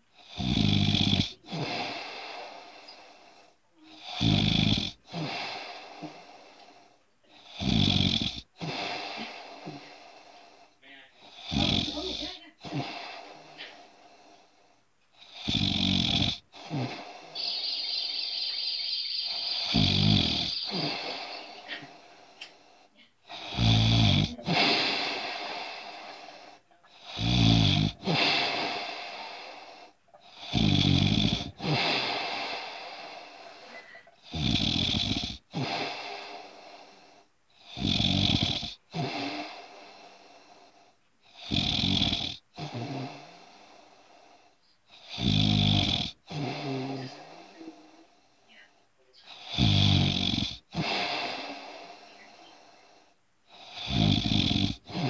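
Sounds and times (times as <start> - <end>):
person snoring: 0.2 - 48.3, 49.2 - 55.0
high whistle in breathing: 17.3 - 21.7.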